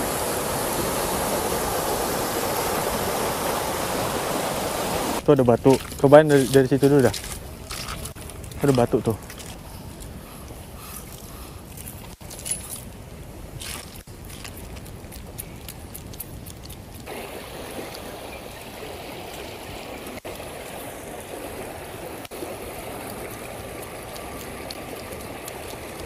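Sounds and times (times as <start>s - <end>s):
river water rushing over rocks: 0.0s - 5.2s.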